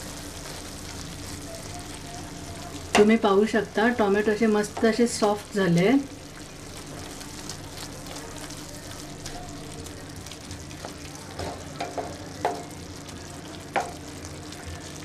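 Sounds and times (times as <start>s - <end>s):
low steady sizzle: 0.0s - 15.0s
spoon scraping and knocking pan: 11.4s - 12.7s.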